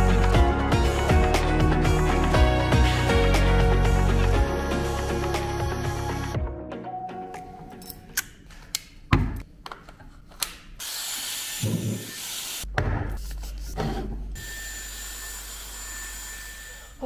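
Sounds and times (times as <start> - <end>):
hair styler blowing air: 10.8 - 12.6.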